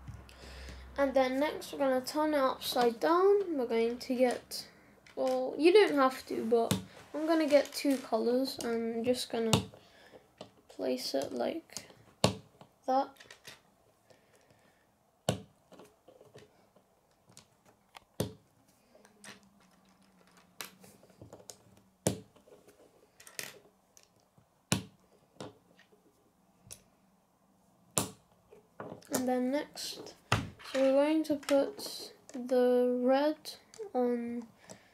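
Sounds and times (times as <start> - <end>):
soft handling rustle: 2.6 - 12.2, 15.7 - 24.4
plastic pieces clicking together: 13.1 - 13.6, 19.0 - 21.6.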